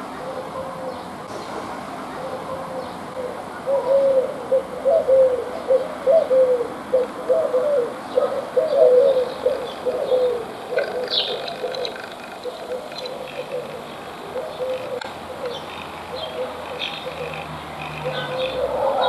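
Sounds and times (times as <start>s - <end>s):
dove cooing: 0.0s - 19.0s.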